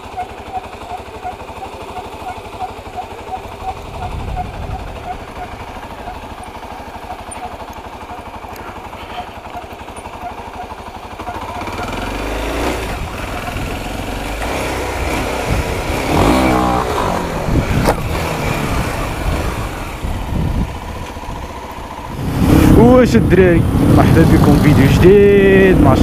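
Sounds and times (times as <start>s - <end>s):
motorcycle engine: 0.0s - 26.0s
wind rumble on microphone: 3.8s - 5.4s, 17.3s - 21.5s.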